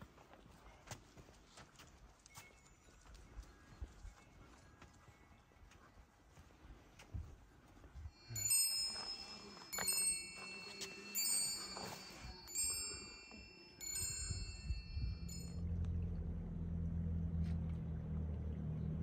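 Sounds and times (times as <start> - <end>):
metal wind chimes ringing: 8.1 - 16.0.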